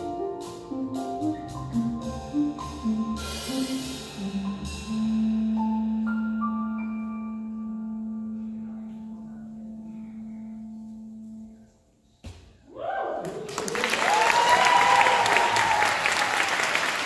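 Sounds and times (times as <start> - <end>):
jazz keyboard chord: 0.0 - 12.0.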